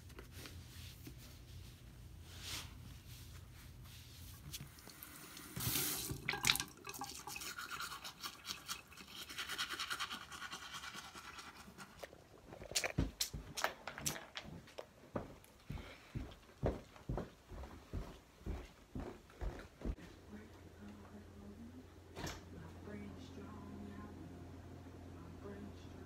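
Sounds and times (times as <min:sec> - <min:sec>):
toothbrush scrubbing teeth: 0:04.7 - 0:12.9.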